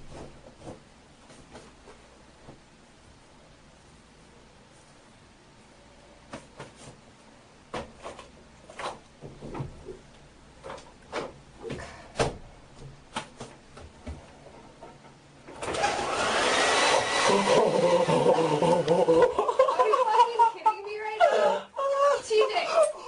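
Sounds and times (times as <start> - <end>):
hair dryer running: 15.6 - 19.2.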